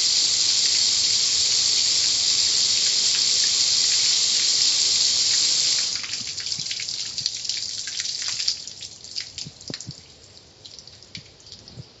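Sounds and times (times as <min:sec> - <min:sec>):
water spray hissing: 0:00.0 - 0:06.9
water dripping and splashing: 0:00.0 - 0:12.0.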